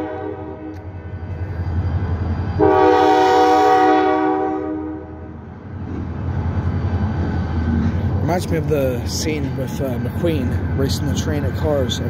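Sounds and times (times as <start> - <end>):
locomotive air horn blast: 0.0 - 0.7, 2.6 - 5.1
locomotive rumbling: 0.0 - 12.0.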